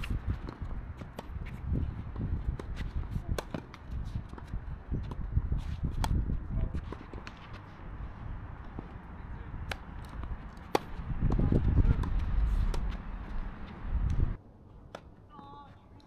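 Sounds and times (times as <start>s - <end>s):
tennis ball bouncing: 0.0s - 5.3s, 5.9s - 6.3s, 9.6s - 14.3s
racket striking tennis ball: 0.0s - 7.6s, 9.6s - 14.3s.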